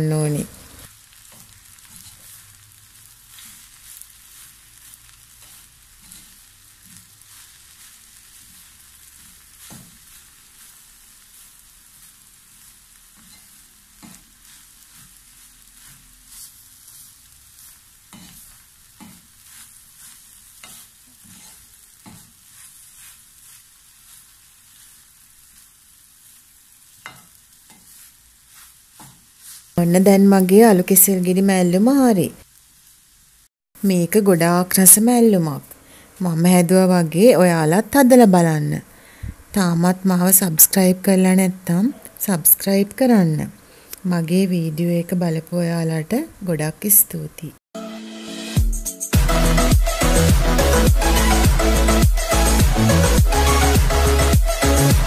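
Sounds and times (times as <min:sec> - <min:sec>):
soft steady sizzle: 0:00.0 - 0:47.6
spatula scraping and tapping pan: 0:01.1 - 0:29.8.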